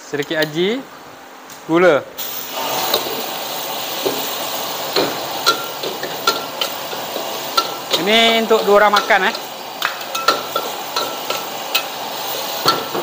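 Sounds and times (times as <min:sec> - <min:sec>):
noodles sizzling in wok: 0:02.2 - 0:13.0
metal utensils clinking on wok: 0:05.0 - 0:13.0.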